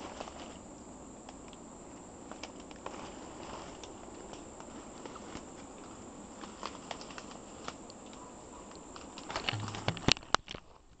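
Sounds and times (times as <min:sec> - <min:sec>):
background hiss: 0:00.0 - 0:11.0
light clicks and crackles: 0:01.2 - 0:11.0
camera handling rubbing and knocks: 0:09.4 - 0:10.6
low hum: 0:09.5 - 0:10.4.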